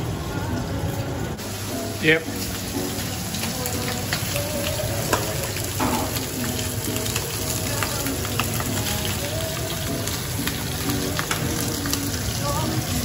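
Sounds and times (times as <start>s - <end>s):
chicken sizzling in hot oil: 0.0s - 13.0s
oil crackling and popping: 1.4s - 13.0s.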